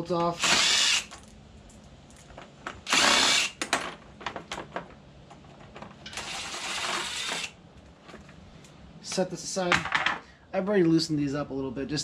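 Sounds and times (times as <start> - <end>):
impact driver running: 2.9 - 3.6.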